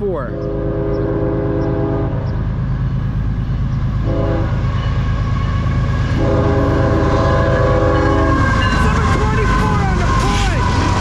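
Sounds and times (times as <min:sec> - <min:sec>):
locomotives approaching rumble: 0:00.0 - 0:11.0
locomotive horn blasts: 0:00.3 - 0:02.4, 0:04.0 - 0:11.0.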